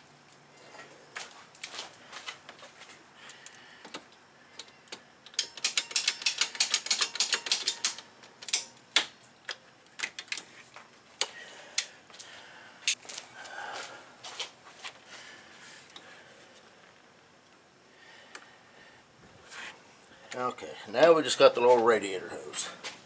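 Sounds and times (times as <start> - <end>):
ratchet wrench clicking: 5.3 - 8.7.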